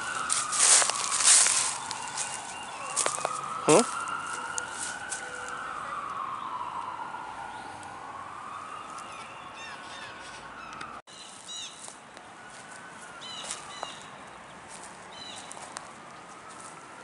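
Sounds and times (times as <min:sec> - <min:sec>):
distant emergency siren wailing: 0:00.0 - 0:17.0
small birds chirping: 0:00.1 - 0:03.4, 0:13.0 - 0:16.4.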